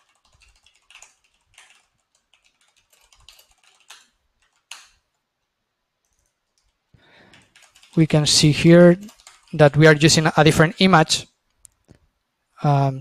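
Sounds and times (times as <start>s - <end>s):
keyboard keystrokes: 0.0s - 5.0s, 6.0s - 8.0s, 9.0s - 9.6s.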